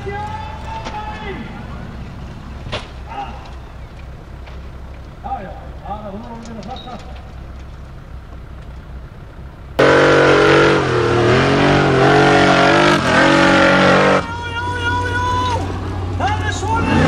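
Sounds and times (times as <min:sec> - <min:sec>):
buggy engine revving hard: 0:09.7 - 0:17.0.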